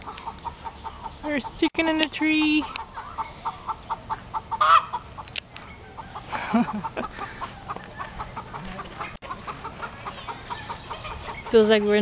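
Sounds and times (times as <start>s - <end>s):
chickens clucking: 0.0s - 12.0s
loud rising chicken call: 3.0s - 5.1s.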